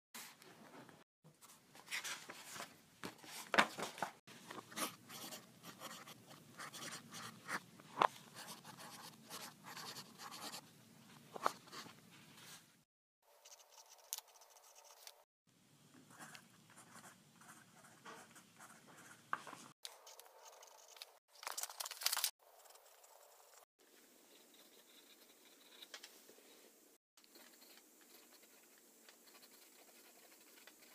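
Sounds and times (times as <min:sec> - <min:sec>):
pencil scratching on paper: 0:04.7 - 0:10.6, 0:13.4 - 0:15.2, 0:16.1 - 0:19.2, 0:24.3 - 0:25.9, 0:27.2 - 0:30.9.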